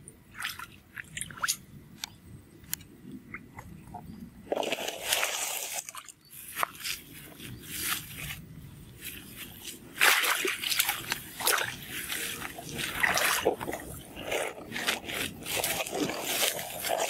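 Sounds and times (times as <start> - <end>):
muddy water splashing: 0.3 - 1.6, 4.5 - 8.4, 9.0 - 17.0.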